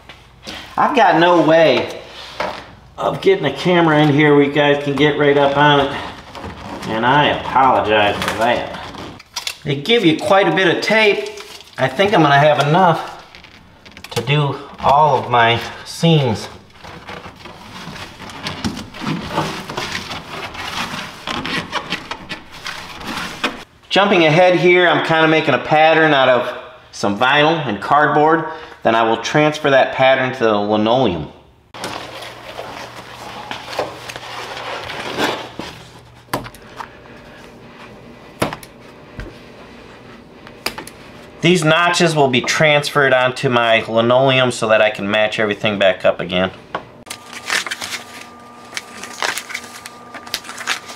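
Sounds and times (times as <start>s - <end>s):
vinyl sheet crinkling: 3.4s - 23.7s, 31.8s - 38.0s, 47.0s - 50.9s
hands rubbing tape on foil mat: 5.4s - 9.7s, 10.8s - 23.7s, 32.0s - 37.8s, 47.1s - 50.9s.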